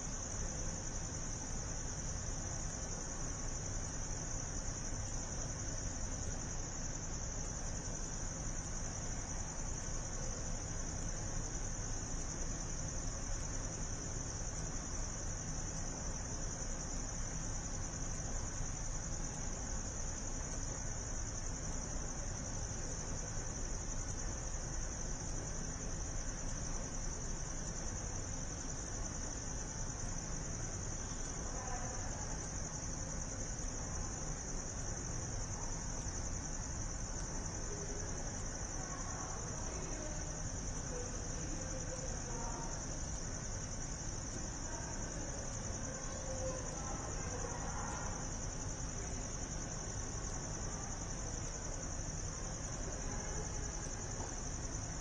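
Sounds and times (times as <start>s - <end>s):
faint indistinct voices: 44.6s - 54.4s.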